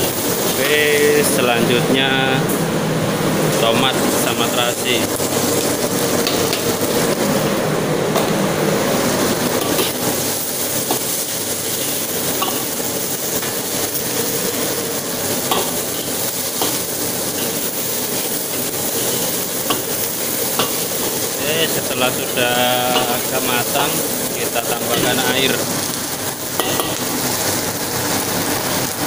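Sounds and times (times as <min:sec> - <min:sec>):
food sizzling in a wok: 0:00.0 - 0:01.2, 0:03.4 - 0:29.0
blower running: 0:00.0 - 0:29.0
ladle clinking against wok: 0:12.4 - 0:12.8, 0:26.6 - 0:27.1.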